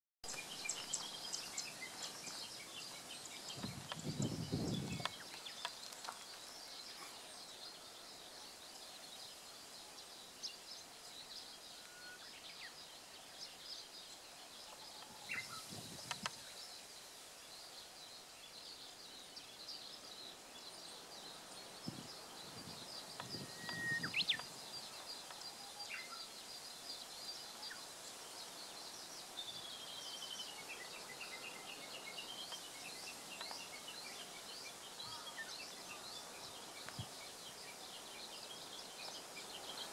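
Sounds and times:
small birds chirping: 0:00.2 - 0:39.9.

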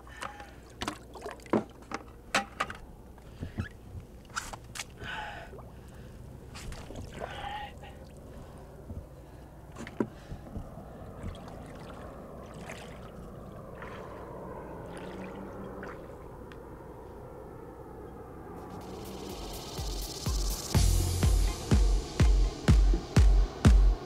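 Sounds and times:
legs wading through shallow water: 0:03.2 - 0:16.5
low wash of water: 0:05.3 - 0:17.7.

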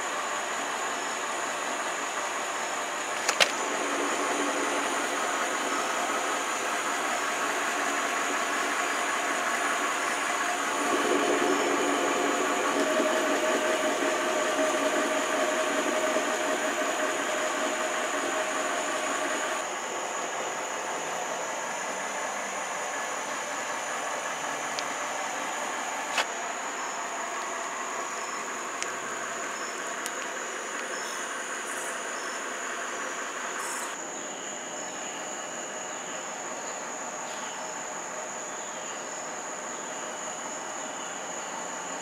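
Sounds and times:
car exhaust idling: 0:00.0 - 0:34.0
sharp click: 0:03.2 - 0:03.6.

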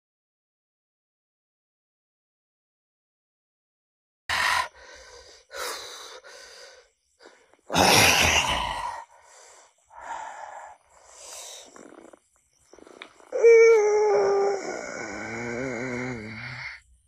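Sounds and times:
person breathing heavily: 0:04.3 - 0:12.2.

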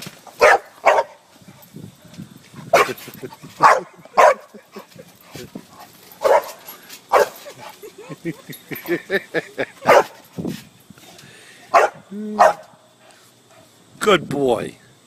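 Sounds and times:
dog barking: 0:00.4 - 0:01.2, 0:02.7 - 0:03.0, 0:03.6 - 0:04.6, 0:06.2 - 0:07.4, 0:09.8 - 0:10.2, 0:11.7 - 0:12.7.

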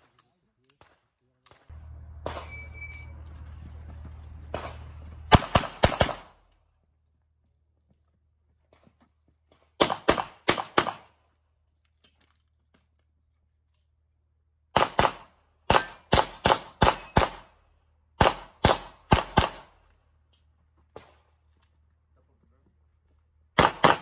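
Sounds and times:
pistol shots: 0:00.8 - 0:02.8, 0:04.5 - 0:06.4, 0:09.8 - 0:11.1, 0:14.8 - 0:17.6, 0:18.2 - 0:19.8, 0:23.6 - 0:24.0.

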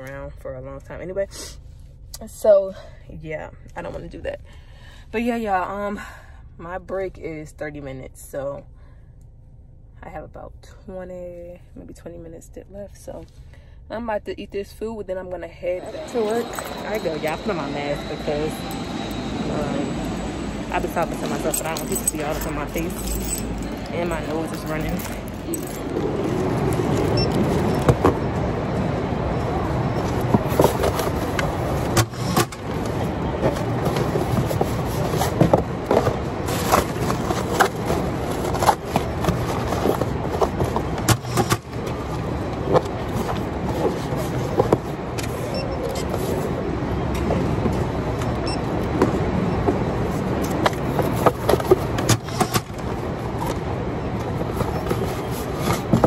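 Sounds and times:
conveyors and machinery humming: 0:15.5 - 0:56.0
plastic rustling: 0:32.8 - 0:41.0.

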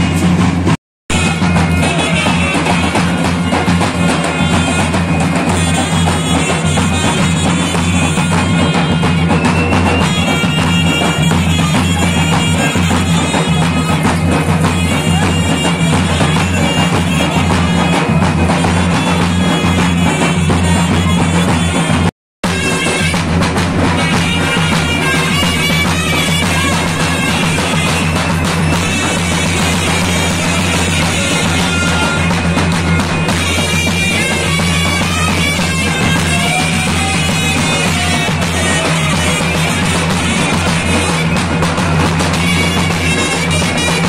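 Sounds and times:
drum beat: 0:00.0 - 0:44.0
bagpipe melody with drone: 0:24.1 - 0:41.2.

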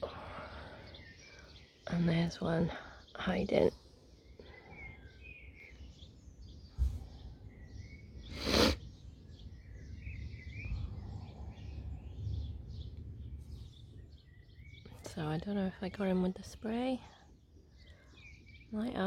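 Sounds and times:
birds chirping: 0:00.0 - 0:19.0
wind rumble on microphone: 0:06.1 - 0:16.4.

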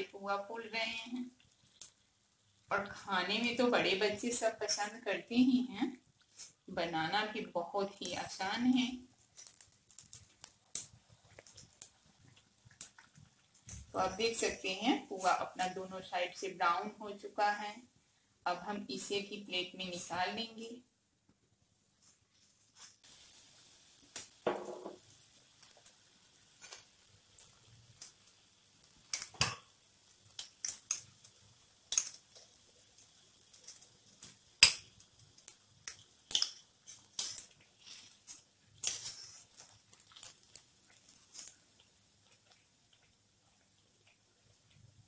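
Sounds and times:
batter sizzling in hot oil: 0:00.0 - 0:20.4, 0:21.6 - 0:45.0
oil popping and crackling: 0:01.2 - 0:04.8, 0:05.9 - 0:15.8, 0:22.7 - 0:45.0.

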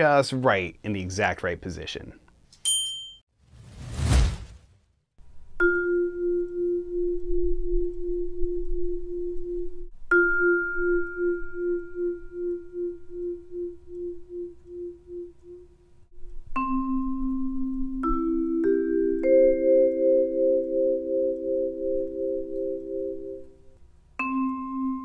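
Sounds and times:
short whoosh: 0:03.4 - 0:05.0.

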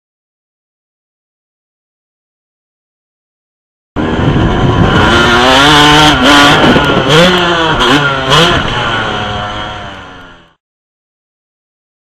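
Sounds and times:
dirt bike engine revving: 0:04.0 - 0:10.6.

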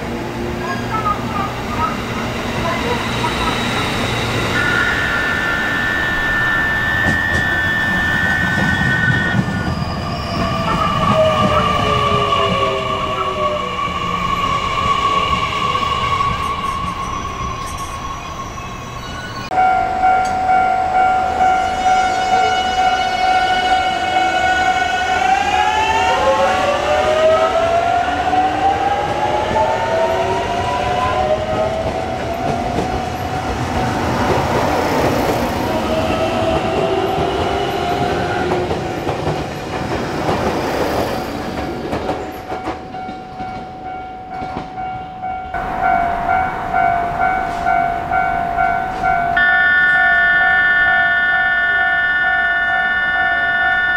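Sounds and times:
train running noise: 0:00.0 - 0:53.9.

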